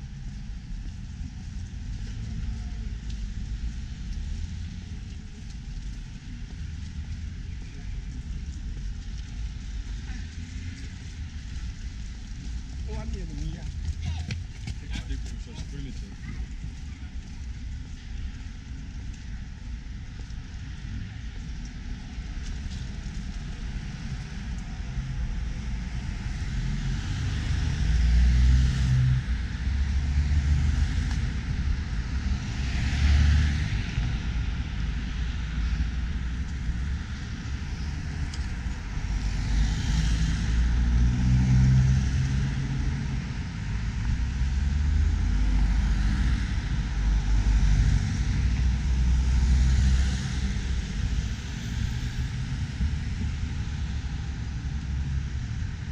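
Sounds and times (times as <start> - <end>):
cars driving past: 32.1 - 35.6, 36.8 - 54.8.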